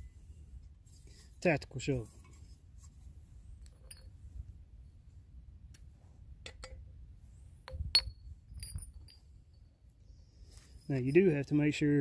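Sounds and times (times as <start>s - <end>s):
tube clinking on stone: 3.6s - 4.2s, 7.7s - 9.7s
light clicks of handle tubes: 5.7s - 6.8s.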